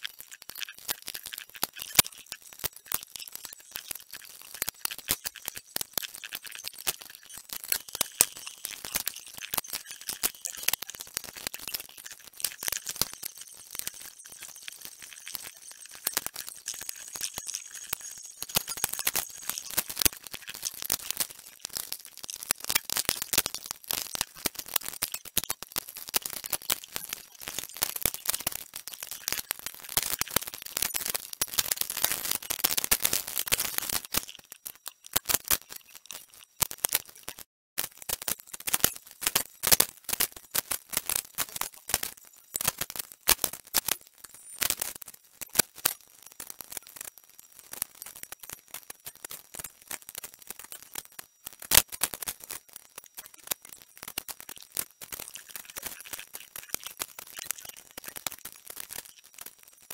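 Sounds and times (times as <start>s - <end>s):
clicking and rattling on circuit board: 0.0s - 59.9s.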